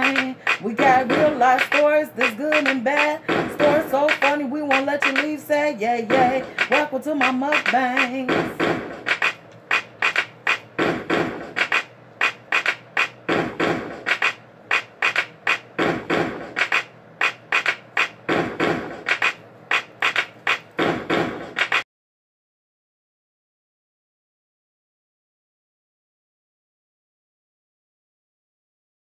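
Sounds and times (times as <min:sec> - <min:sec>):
outro music with drum beat: 0:00.0 - 0:05.4, 0:06.1 - 0:21.8.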